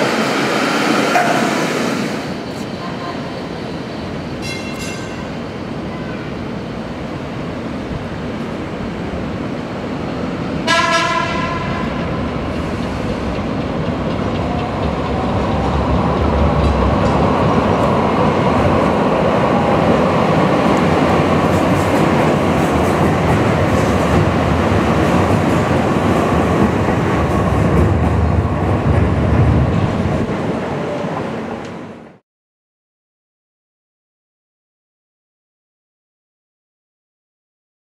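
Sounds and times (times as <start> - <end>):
steel wheels rumbling on rail: 0.0 - 32.1.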